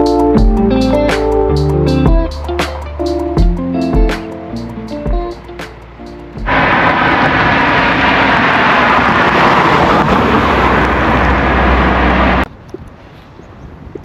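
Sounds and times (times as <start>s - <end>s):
loud steady rushing noise: 2.0s - 12.5s
low rumble: 6.4s - 12.5s.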